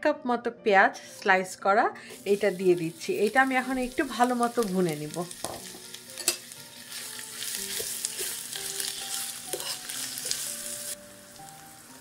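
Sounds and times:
onions sizzling in oil: 2.1 - 12.0
metal spoon scraping pan: 6.2 - 10.5.

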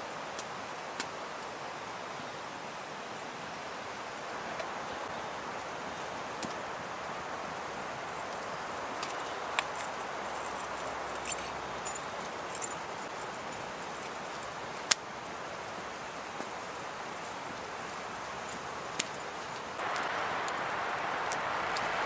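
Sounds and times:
campfire crackling and popping: 4.3 - 22.0
wind rushing: 19.8 - 22.0.

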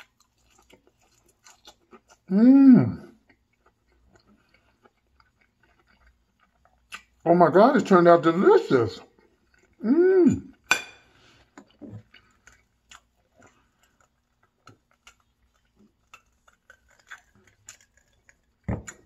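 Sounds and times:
person humming: 2.3 - 3.1, 9.8 - 10.5.

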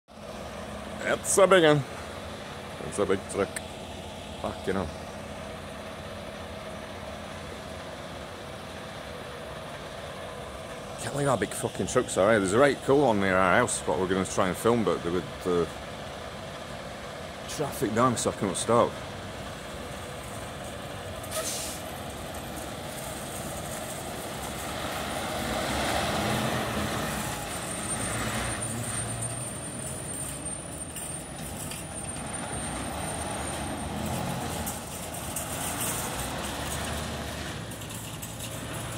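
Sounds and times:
diesel truck engine passing: 0.1 - 38.9
short air hiss: 21.3 - 21.9.

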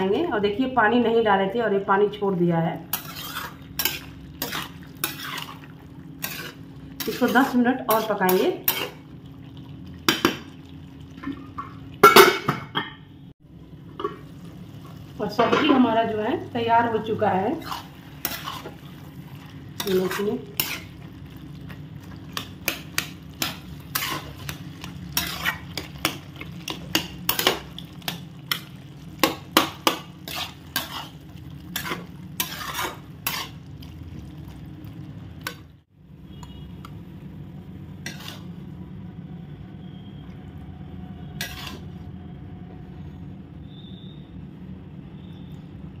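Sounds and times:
metal spatula scraping a pot: 2.9 - 9.0, 17.3 - 21.7, 22.3 - 33.7, 38.0 - 38.6, 41.3 - 42.0.

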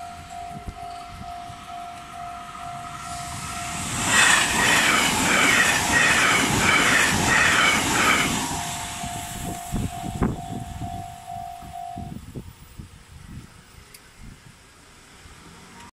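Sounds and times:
level crossing warning bell: 0.0 - 12.7
electric train passing at speed: 0.0 - 15.9.

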